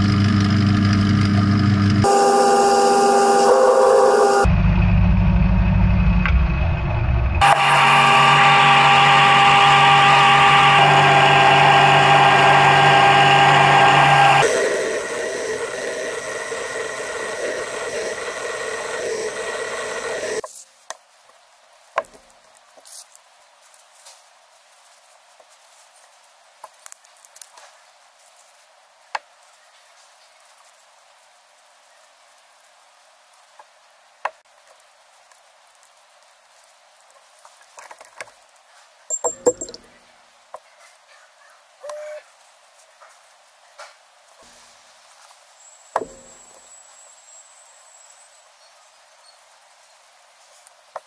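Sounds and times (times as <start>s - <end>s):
milling machine whine: 0.0s - 6.2s, 7.4s - 20.4s
screwdriver squeaking on glass: 39.1s - 39.8s
metal parts handled: 39.1s - 39.9s.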